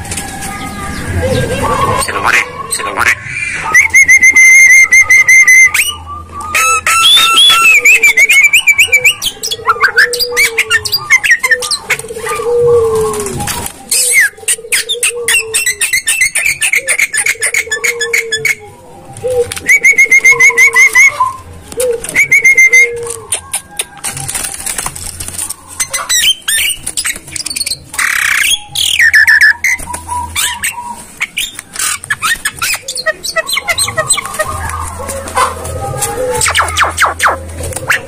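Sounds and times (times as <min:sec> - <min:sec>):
bird low croaking notes: 0:00.0 - 0:15.6
bird gliding whistles: 0:02.8 - 0:11.9, 0:22.1 - 0:24.0.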